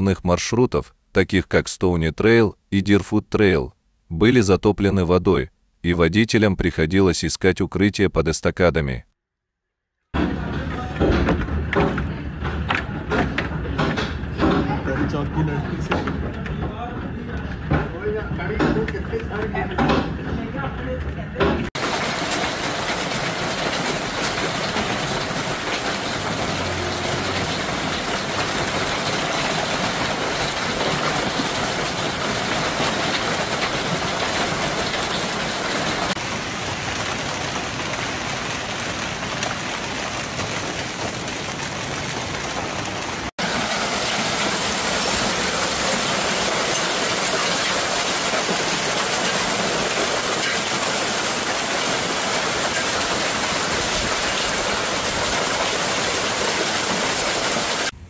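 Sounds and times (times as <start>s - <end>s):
heavy hail and pouring rain: 21.8s - 58.0s.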